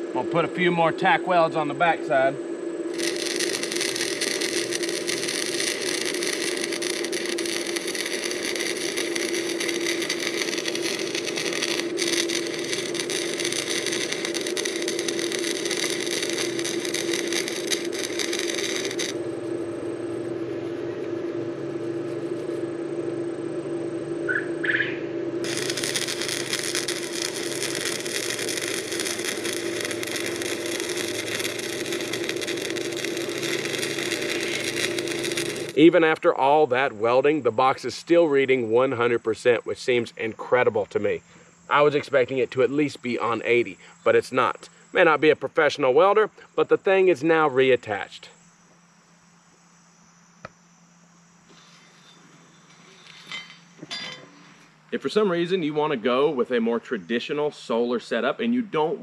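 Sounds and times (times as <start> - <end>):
welding arc crackling: 0.0 - 45.8
steady hum: 0.0 - 59.0.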